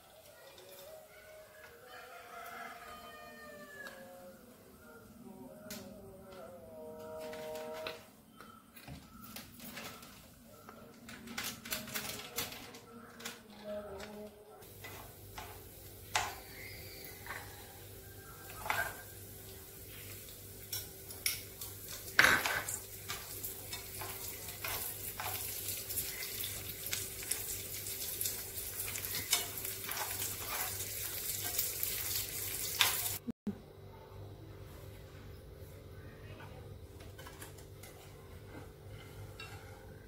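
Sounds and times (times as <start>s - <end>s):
nuts sizzling in a pan: 14.6s - 33.3s
spoon scraping a pan: 14.8s - 17.6s, 18.4s - 19.1s, 20.7s - 27.5s, 28.2s - 33.2s.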